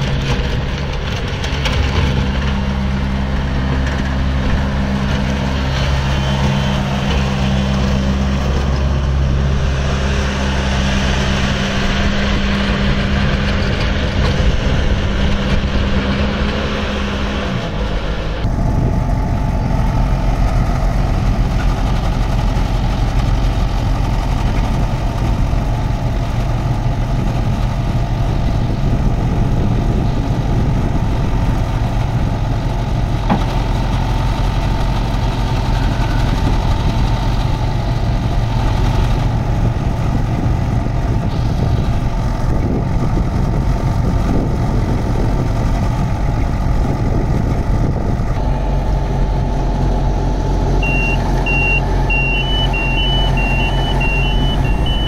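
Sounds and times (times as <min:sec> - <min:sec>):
diesel engine running: 0:00.0 - 0:55.0
short electronic beeps: 0:50.8 - 0:55.0.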